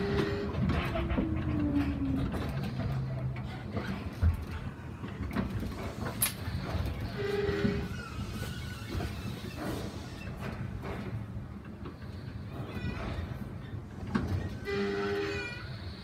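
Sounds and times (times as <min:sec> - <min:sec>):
transit car low rumble: 0:00.0 - 0:09.0.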